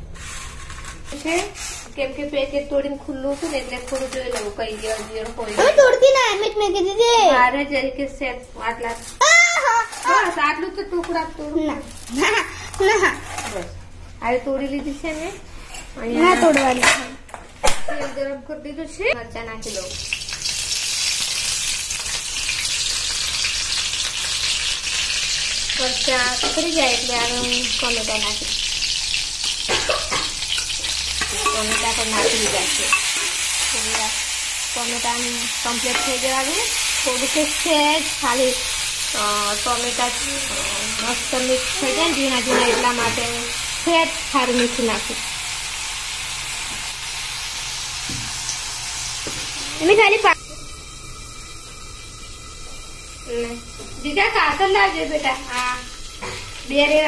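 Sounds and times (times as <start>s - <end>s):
steel spatula stirring: 0.0s - 2.2s, 3.1s - 6.2s, 30.5s - 34.3s, 35.8s - 37.0s
vegetables sizzling in hot oil: 0.0s - 7.6s, 8.6s - 13.6s, 19.4s - 57.0s
metal ladle stirring in a wok: 31.2s - 33.7s.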